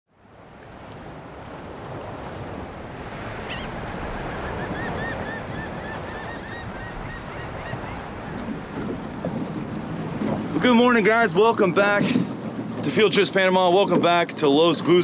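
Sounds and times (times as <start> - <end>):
ocean surf washing onto beach: 0.2 - 15.0
bird calling: 3.0 - 10.5.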